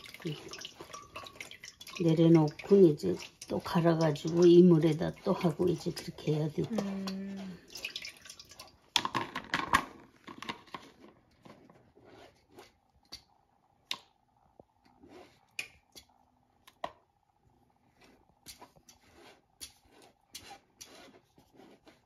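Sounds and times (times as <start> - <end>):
spatula scraping through metal sieve: 18.9 - 22.0.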